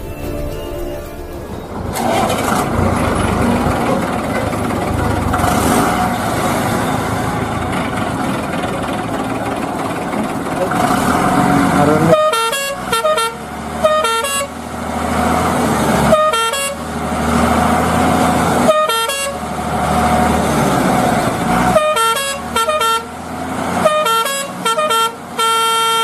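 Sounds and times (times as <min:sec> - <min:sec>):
electronic horn beeps: 0:00.0 - 0:03.3, 0:12.0 - 0:14.5, 0:16.1 - 0:16.8, 0:18.7 - 0:19.4, 0:21.8 - 0:23.1, 0:23.8 - 0:26.0.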